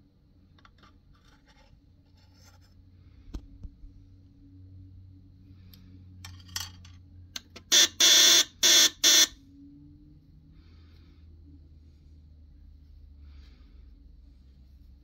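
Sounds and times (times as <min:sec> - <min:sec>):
battery buzzer blasts: 0:07.6 - 0:09.4.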